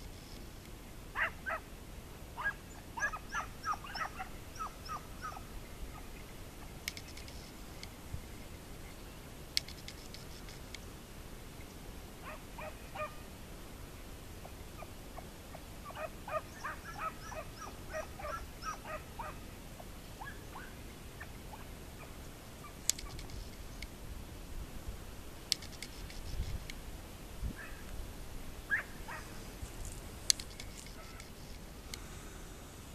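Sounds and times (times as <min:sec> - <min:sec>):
hunting dogs baying: 0:01.2 - 0:01.7, 0:02.4 - 0:06.1, 0:12.2 - 0:13.2, 0:14.8 - 0:19.4, 0:28.7 - 0:30.0
sharp clicks: 0:06.8 - 0:08.0, 0:09.6 - 0:10.8, 0:22.8 - 0:23.9, 0:25.5 - 0:26.8, 0:29.8 - 0:32.0.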